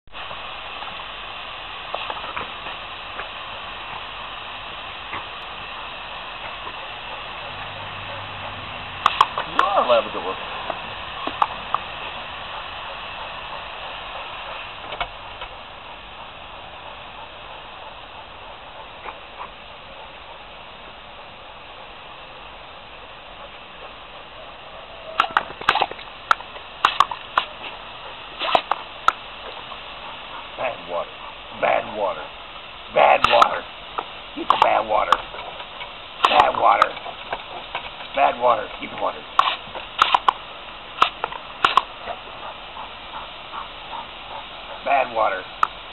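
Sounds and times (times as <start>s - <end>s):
hose spray nozzle hissing: 0.2s - 45.9s
dog jaws snapping: 9.0s - 9.8s, 25.2s - 27.6s, 28.4s - 29.2s, 33.2s - 33.6s, 34.5s - 35.5s, 36.2s - 37.5s, 39.4s - 42.0s.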